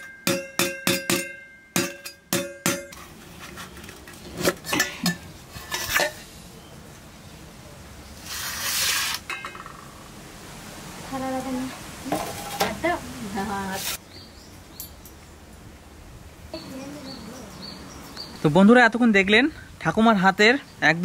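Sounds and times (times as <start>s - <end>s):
metal clinking and ringing: 0.0s - 3.0s
metal rasping scrape: 2.6s - 6.3s.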